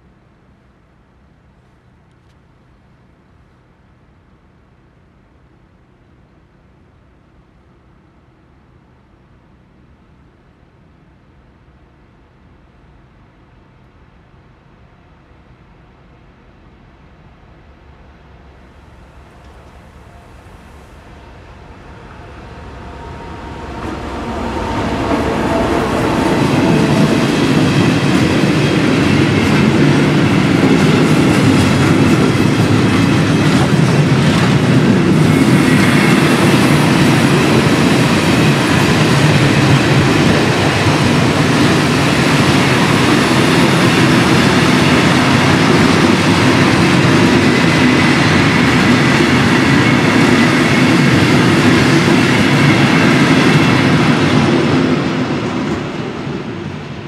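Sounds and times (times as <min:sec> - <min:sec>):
diesel locomotive passing: 0:00.0 - 0:57.0
train wheels on rails: 0:17.4 - 0:57.0.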